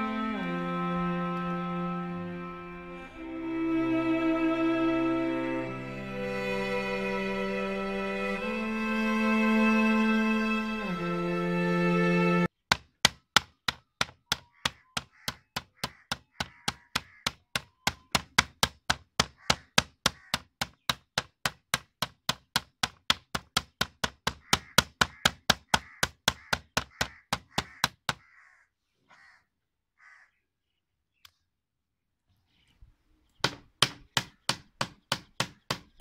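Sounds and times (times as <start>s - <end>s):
spoon pounding meat on board: 12.7s - 28.3s.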